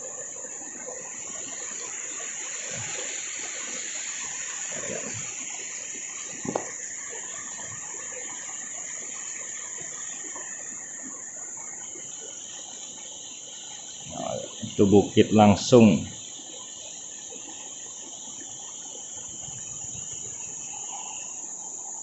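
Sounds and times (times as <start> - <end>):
river water over rocks: 0.0 - 13.4
high insect drone: 0.0 - 22.0.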